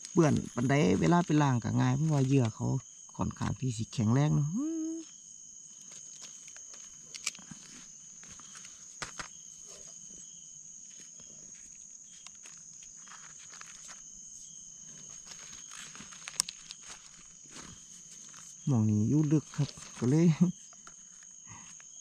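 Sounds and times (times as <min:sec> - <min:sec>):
crickets chirping: 0:00.0 - 0:22.0
rustling and scraping of leaf litter: 0:05.7 - 0:22.0.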